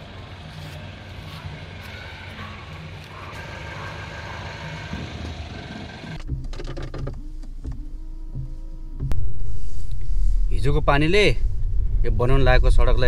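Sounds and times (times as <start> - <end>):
street vehicle noise: 0.0 - 6.9.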